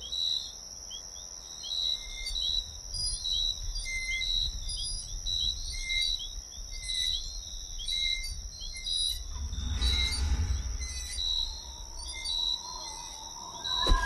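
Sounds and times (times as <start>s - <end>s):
high insect trill: 0.1s - 14.0s
low rumble: 9.0s - 14.0s
low whoosh: 9.1s - 14.0s.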